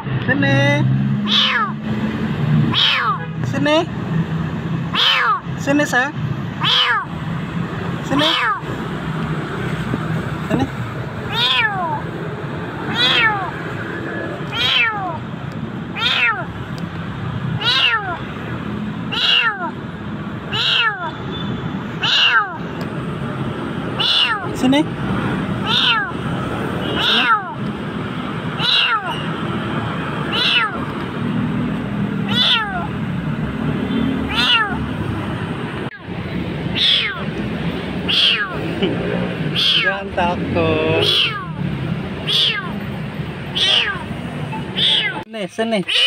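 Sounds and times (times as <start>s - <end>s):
kitten meowing: 1.2s - 1.9s, 2.7s - 3.4s, 4.9s - 5.6s, 6.5s - 7.2s, 8.0s - 8.8s, 10.6s - 12.1s, 12.8s - 13.6s, 14.4s - 16.6s, 17.5s - 18.3s, 19.0s - 19.8s, 20.4s - 22.8s, 23.9s - 24.7s, 25.6s - 27.8s, 28.4s - 29.4s, 30.2s - 31.0s, 32.2s - 33.0s, 34.2s - 35.0s, 35.8s - 37.4s, 38.0s - 38.8s, 39.5s - 40.2s, 40.8s - 42.8s, 43.4s - 46.0s.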